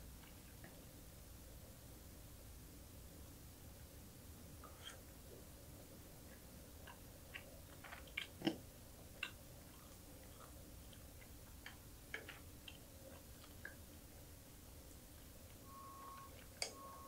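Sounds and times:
chewing small fish: 4.6s - 15.6s.

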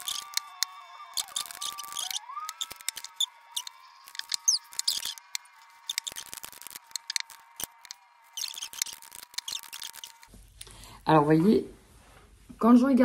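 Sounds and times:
cards being handled: 0.0s - 0.6s, 1.2s - 10.3s.

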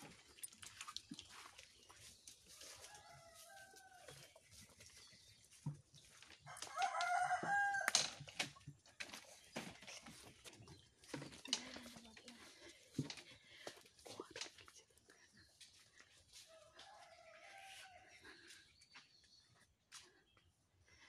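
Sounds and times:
rooster crowing: 2.7s - 4.2s, 6.5s - 8.0s, 16.6s - 18.2s.

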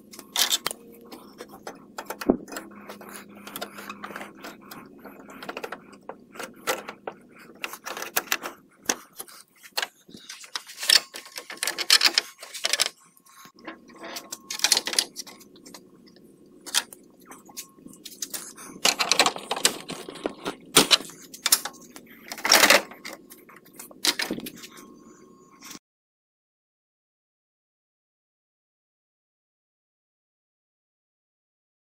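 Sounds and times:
faint low hum: 0.0s - 25.8s
plastic grille clicking and rattling: 1.4s - 12.9s, 18.1s - 23.2s.

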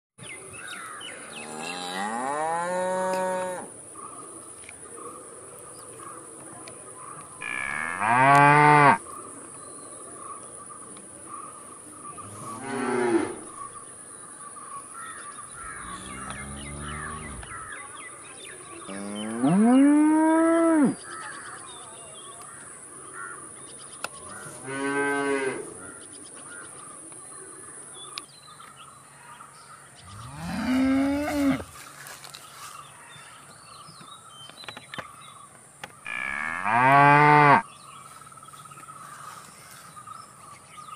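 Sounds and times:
cows mooing: 15.8s - 17.6s, 30.1s - 31.7s.

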